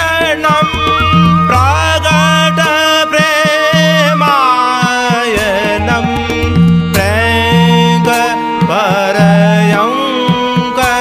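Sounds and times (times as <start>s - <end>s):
person singing devotional song: 0.0s - 11.0s
tabla strokes: 0.0s - 11.0s
held drone notes: 0.5s - 4.2s.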